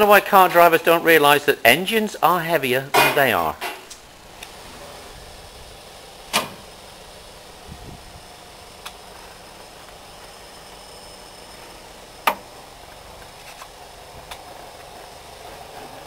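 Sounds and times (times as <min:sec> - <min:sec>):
background hiss: 0:00.0 - 0:16.0
faint high whine: 0:00.0 - 0:16.0.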